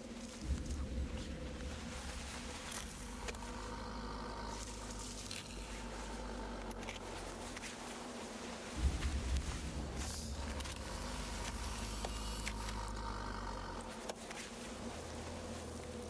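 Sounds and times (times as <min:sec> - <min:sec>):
faint humming tones: 0:00.0 - 0:16.0
low drone: 0:00.0 - 0:16.0
soft crackles: 0:00.0 - 0:16.0.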